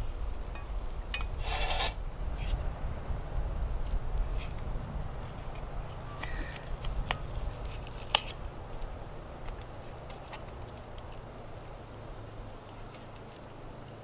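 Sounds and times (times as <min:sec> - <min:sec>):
knife and fork scraping on plate: 0:01.4 - 0:02.6.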